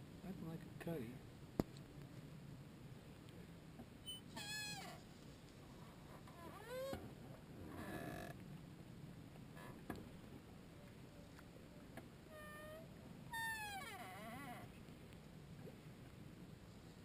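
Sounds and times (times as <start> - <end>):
faint animal calls: 4.1 - 5.0, 12.2 - 14.8.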